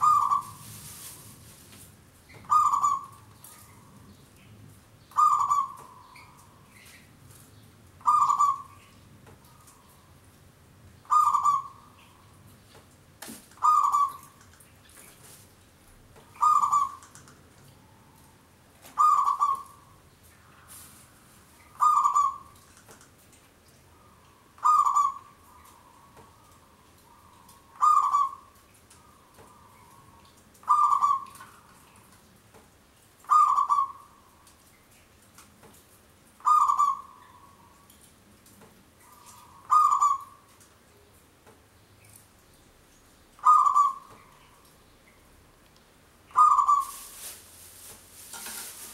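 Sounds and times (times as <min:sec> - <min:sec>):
dove cooing: 0:00.0 - 0:01.0, 0:02.4 - 0:03.9, 0:05.1 - 0:06.4, 0:08.0 - 0:08.8, 0:11.1 - 0:11.9, 0:13.6 - 0:14.4, 0:16.4 - 0:17.0, 0:18.9 - 0:19.9, 0:21.8 - 0:22.6, 0:24.0 - 0:31.7, 0:33.3 - 0:34.2, 0:36.4 - 0:37.8, 0:39.0 - 0:40.4, 0:43.4 - 0:44.6, 0:46.3 - 0:47.2.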